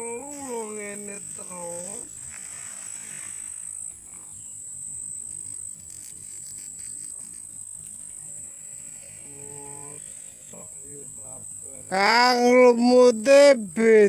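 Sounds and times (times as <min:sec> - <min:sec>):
insects chirring drone: 0:00.0 - 0:14.0.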